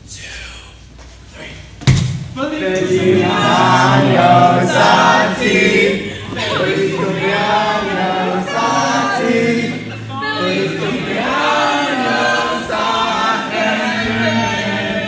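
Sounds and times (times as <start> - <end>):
group of people singing: 2.4 - 15.0.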